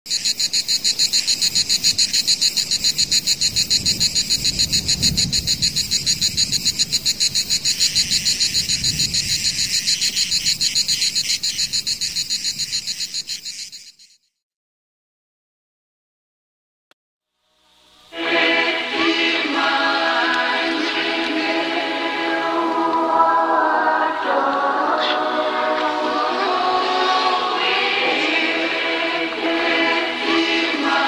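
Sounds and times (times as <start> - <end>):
frogs and insects trilling: 0.1 - 14.3.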